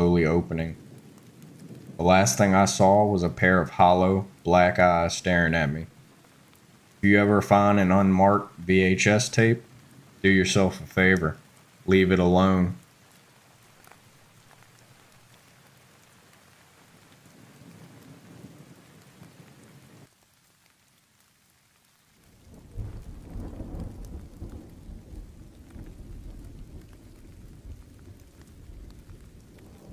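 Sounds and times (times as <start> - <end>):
rolling thunder: 0.0 - 6.0, 22.4 - 29.9
steady rain: 0.0 - 29.9.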